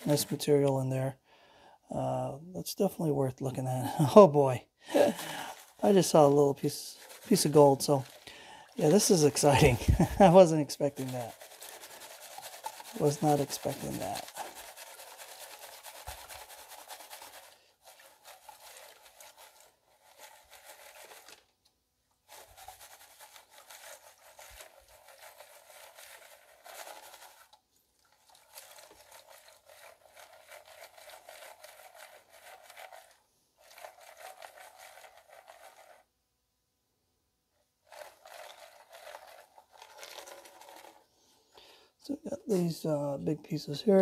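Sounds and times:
gravel and water swishing in pan: 5.0 - 21.4, 22.3 - 36.0, 37.9 - 41.1.

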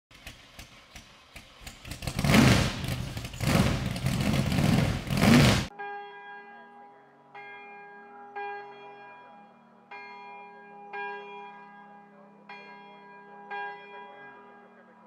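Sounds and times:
loud rushing surges: 2.0 - 5.7.

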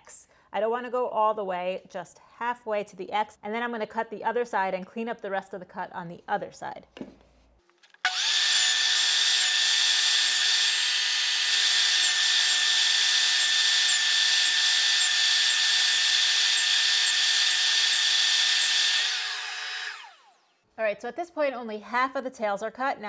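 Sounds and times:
table saw motor whine: 8.1 - 20.7.

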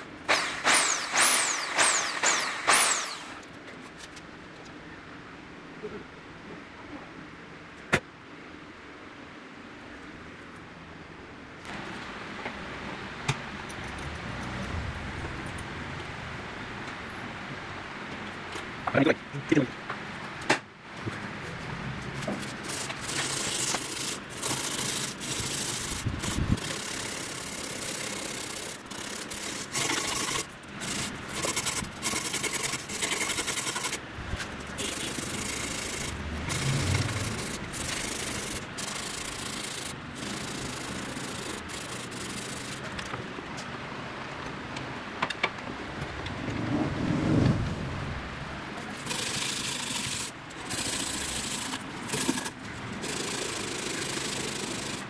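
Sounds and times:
sandpaper rasping by hand: 29.2 - 34.0.

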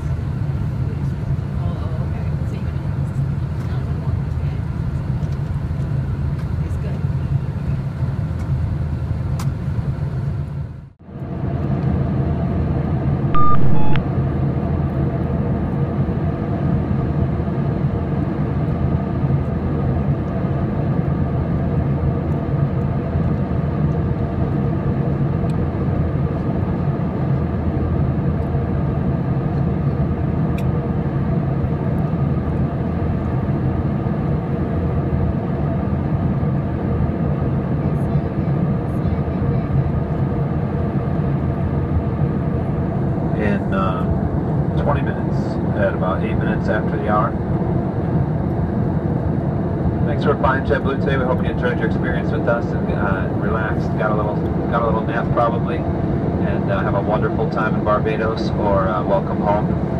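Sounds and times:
airplane cabin roar: 0.0 - 59.9.

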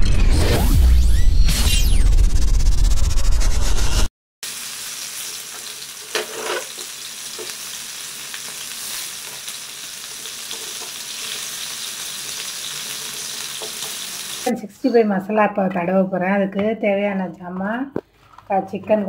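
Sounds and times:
chicken sizzling in hot oil: 4.4 - 14.5
spatula scraping pan: 5.5 - 7.6.

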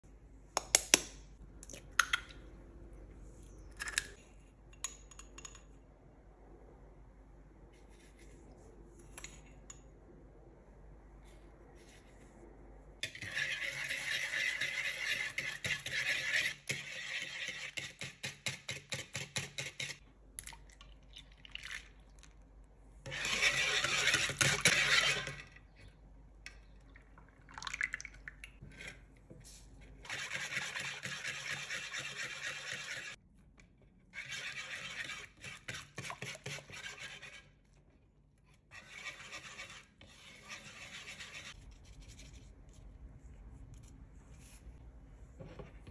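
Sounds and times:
whisk beating batter in bowl: 13.0 - 20.0, 23.1 - 25.4, 29.9 - 33.2, 34.2 - 37.7, 38.7 - 41.6.

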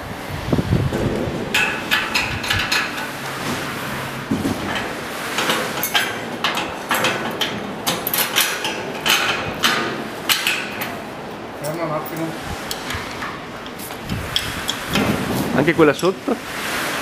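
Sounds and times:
metallic clicks and knocks: 4.6 - 11.0.

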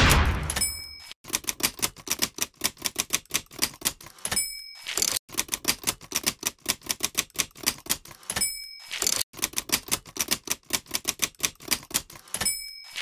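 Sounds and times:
typewriter margin bell ding: 0.5 - 1.2, 4.2 - 5.2, 8.2 - 9.2, 12.3 - 13.0
typewriter keys clacking: 0.5 - 13.0.

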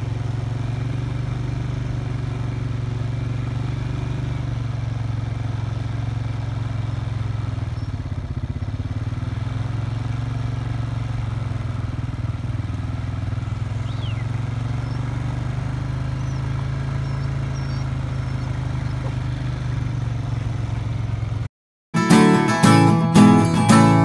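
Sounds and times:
engine idling hum: 0.0 - 21.5
faint bird chirps: 7.6 - 8.1, 13.5 - 21.0
strummed acoustic guitar music: 22.0 - 24.0.

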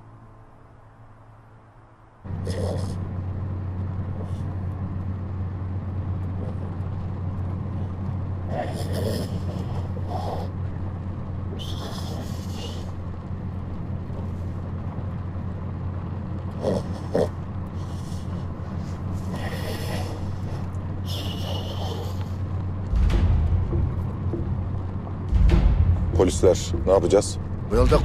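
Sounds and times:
vehicle engine droning: 0.0 - 28.0
short breathy hisses: 21.1 - 22.3.

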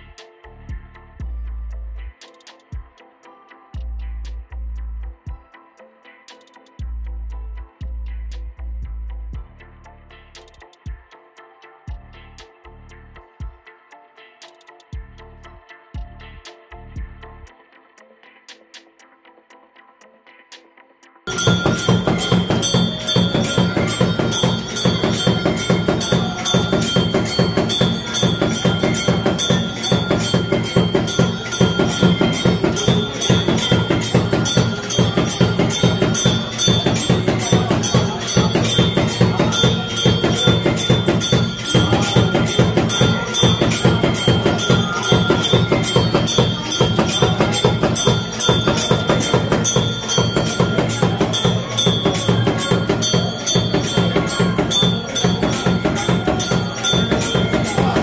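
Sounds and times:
music with fast percussion beat: 2.1 - 3.1, 3.8 - 5.5, 6.3 - 9.6, 10.4 - 11.2, 21.3 - 58.0
steady high tones: 21.3 - 58.0.

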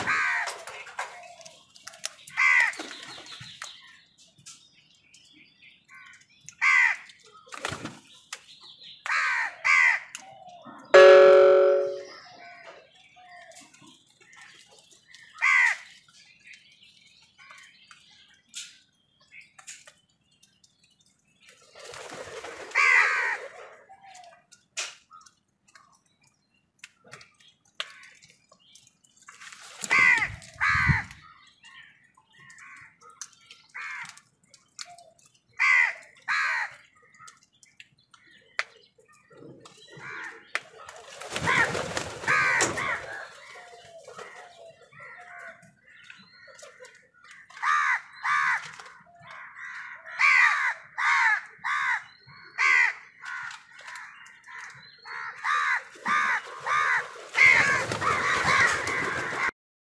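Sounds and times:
crows cawing: 0.0 - 0.7, 2.3 - 2.8, 6.0 - 7.2, 9.1 - 10.2, 15.4 - 15.9, 22.8 - 23.8, 29.9 - 31.2, 33.8 - 34.3, 35.6 - 37.4, 40.0 - 40.5, 41.4 - 46.0, 46.6 - 59.5.

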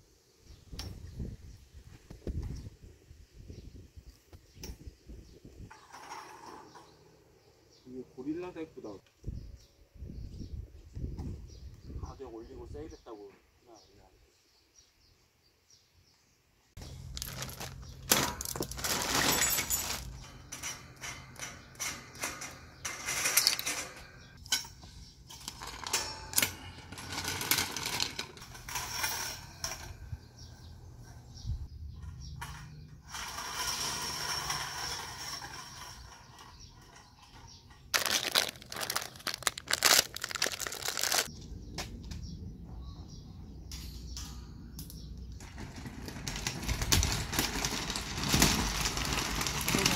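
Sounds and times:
plastic bags crinkling: 16.8 - 20.2, 26.8 - 28.4, 37.9 - 41.3, 45.5 - 49.9
wire shelves clanking: 16.8 - 41.3.

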